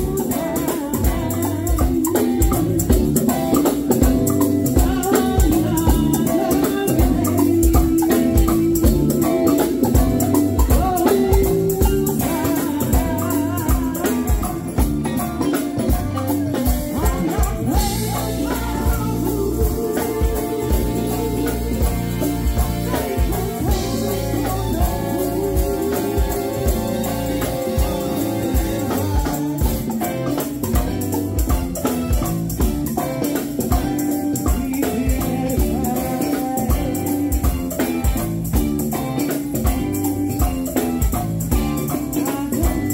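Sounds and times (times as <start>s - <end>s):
singers on microphones: 0.0s - 15.1s, 16.8s - 30.1s, 33.6s - 38.3s, 41.6s - 42.9s
bass guitar: 0.0s - 42.9s
drum kit and percussion beat: 0.0s - 42.9s
electric guitar: 0.0s - 42.9s.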